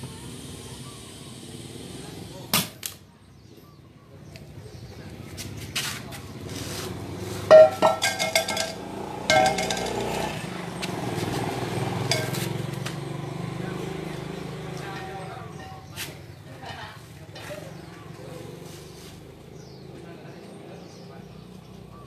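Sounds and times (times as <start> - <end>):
metal tools knocking and clanking: 7.5 - 10.4, 12.1 - 12.4.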